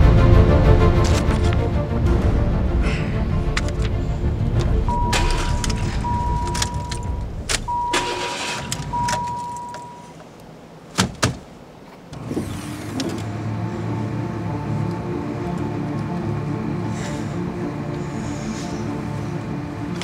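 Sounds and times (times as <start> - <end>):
electronic warning tone: 4.9 - 10.2.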